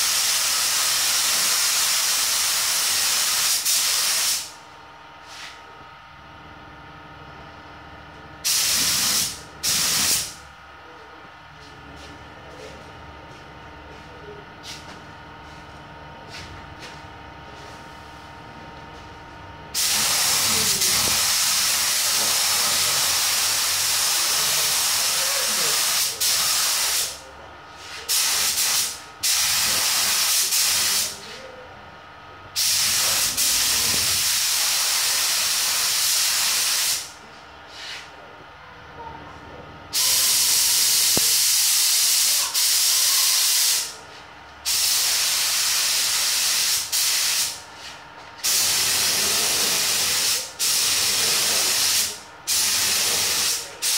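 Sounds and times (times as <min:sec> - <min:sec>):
spray gun air hiss: 0:00.0 - 0:04.6, 0:08.4 - 0:10.4, 0:19.8 - 0:27.2, 0:27.8 - 0:31.2, 0:32.6 - 0:37.1, 0:40.0 - 0:43.9, 0:44.6 - 0:53.9.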